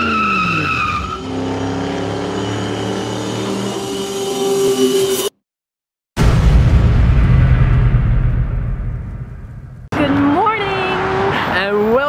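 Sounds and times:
tyre squeal: 0:00.0 - 0:04.4
car engine running and revving: 0:09.9 - 0:12.0.

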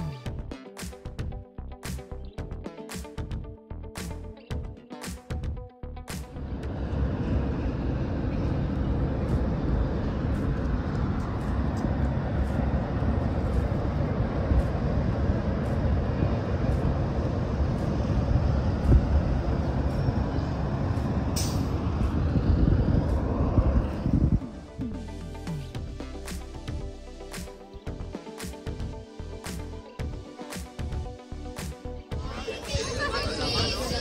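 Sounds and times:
vehicle engine rumble: 0:06.2 - 0:27.0.

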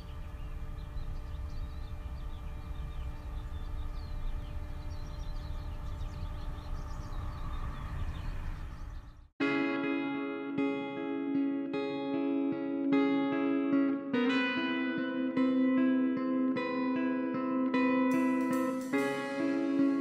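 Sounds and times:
faint held hum: 0:00.0 - 0:09.1
small birds chirping: 0:00.0 - 0:09.3, 0:18.1 - 0:20.0
steady low rumble: 0:00.0 - 0:09.3
plucked guitar: 0:09.4 - 0:20.0.

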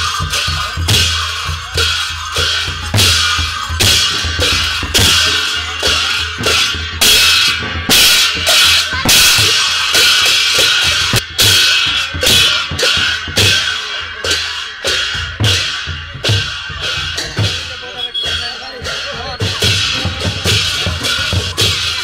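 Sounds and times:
cymbals ringing: 0:00.0 - 0:22.0
drums playing a driving beat: 0:00.0 - 0:22.0.

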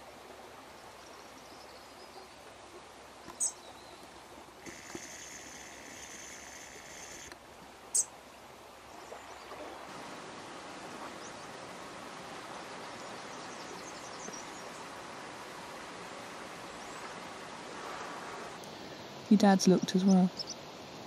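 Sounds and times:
seashore hiss: 0:04.6 - 0:07.4, 0:14.9 - 0:19.3.

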